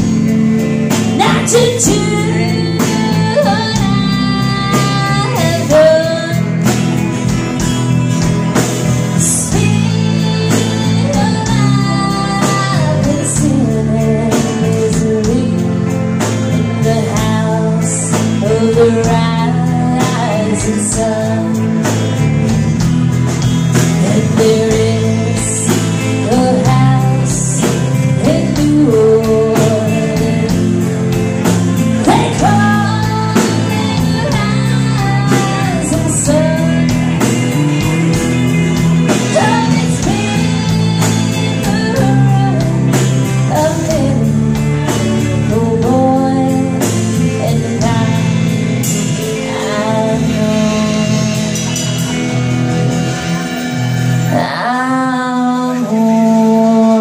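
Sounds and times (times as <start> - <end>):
acoustic and electric guitars: 0.0 - 57.0
drums keeping a steady beat: 0.0 - 57.0
keyboard: 0.0 - 57.0
woman singing lead: 0.0 - 57.0.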